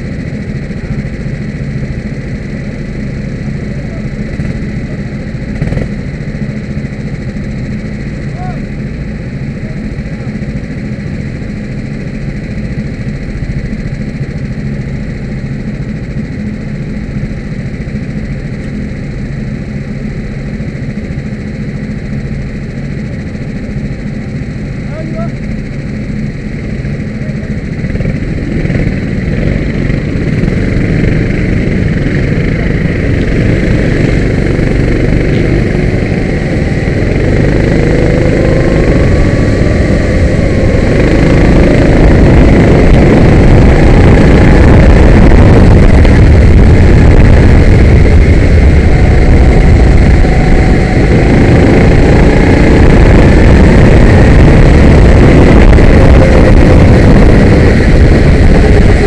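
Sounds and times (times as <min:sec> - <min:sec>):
kart engine revving: 0:27.7 - 0:59.0.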